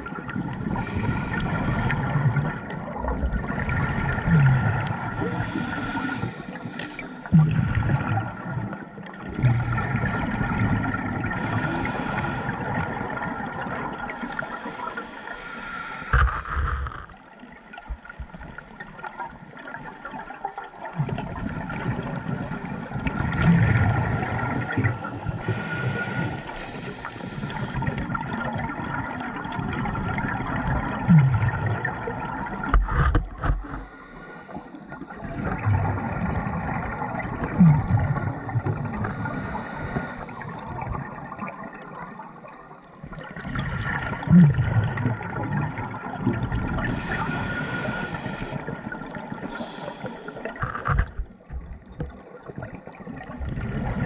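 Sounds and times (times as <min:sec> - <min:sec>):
exhaled bubbles gurgling: 0:00.0 - 0:54.0
regulator inhale hiss: 0:00.8 - 0:02.1, 0:05.0 - 0:07.3, 0:11.4 - 0:12.7, 0:14.2 - 0:17.0, 0:25.4 - 0:28.1, 0:33.6 - 0:35.0, 0:39.0 - 0:40.6, 0:46.8 - 0:48.8, 0:49.4 - 0:50.8.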